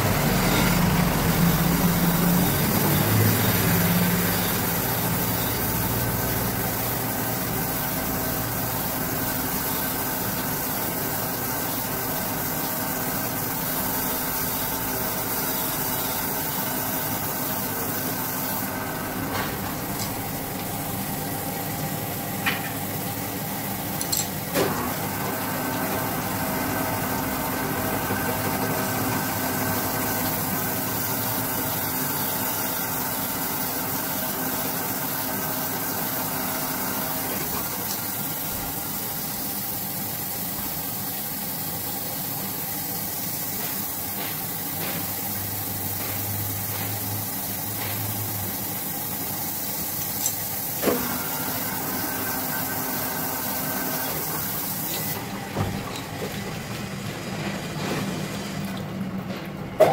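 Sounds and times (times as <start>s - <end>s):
grinding machine hum: 0.0s - 38.8s
coolant washing: 0.0s - 59.9s.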